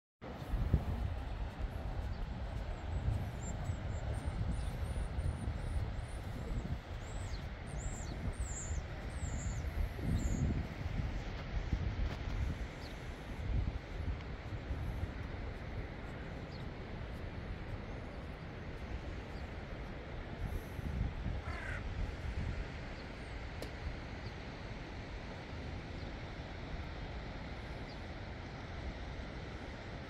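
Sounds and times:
wind rumbling on microphone: 0.2 - 30.0
crow cawing: 21.4 - 21.8.

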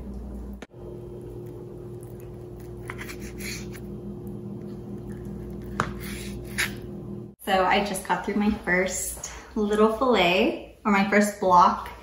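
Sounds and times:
steady low hum: 0.0 - 9.6
knife slicing fish: 2.7 - 3.8.

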